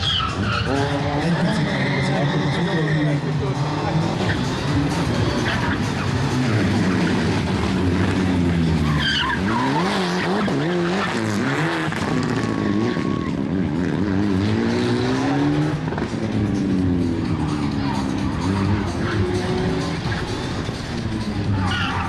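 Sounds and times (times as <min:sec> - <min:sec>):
tyres squealing: 0:00.0 - 0:07.2, 0:08.6 - 0:13.3, 0:21.3 - 0:22.0
rally car engines revving: 0:00.0 - 0:22.0.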